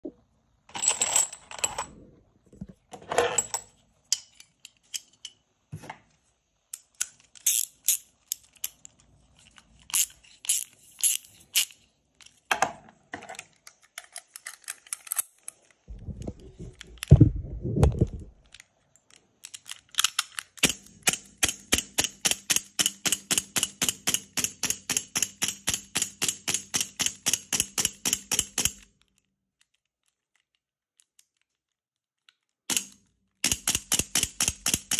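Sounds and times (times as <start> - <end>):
dull handling noise: 15.8 - 18.6.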